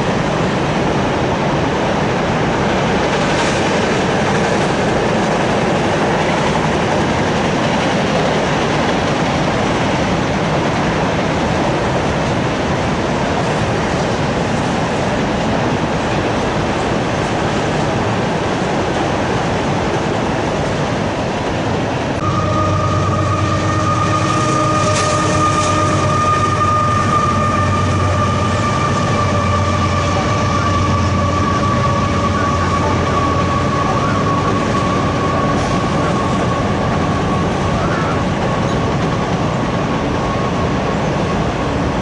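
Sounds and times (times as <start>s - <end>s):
train wheels rumbling on rail: 0.0s - 42.0s
high-pitched squeal: 22.2s - 38.8s.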